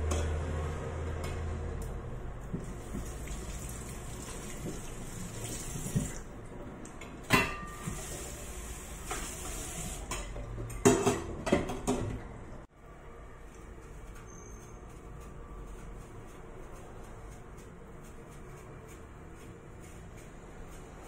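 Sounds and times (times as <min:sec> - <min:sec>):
tap water running: 0:02.5 - 0:06.3, 0:07.8 - 0:10.1
dishes clinking in metal sink: 0:07.2 - 0:08.1, 0:09.0 - 0:12.2.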